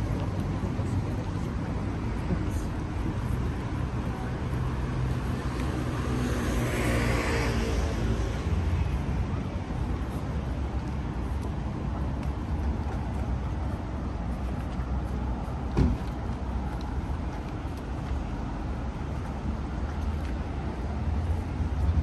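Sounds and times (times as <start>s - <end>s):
traffic rumble: 0.0s - 22.0s
vehicle passing close by: 4.8s - 9.1s.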